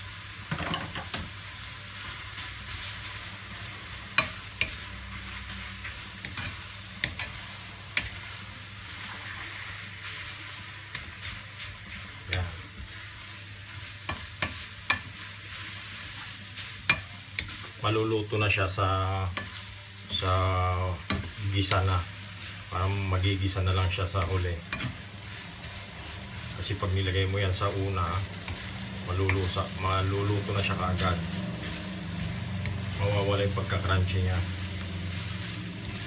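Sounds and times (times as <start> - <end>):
stir-fry sizzling in a pan: 0.0 - 36.0
spatula scraping and knocking pan: 5.8 - 8.2, 14.0 - 15.2, 21.0 - 22.0, 23.8 - 25.9.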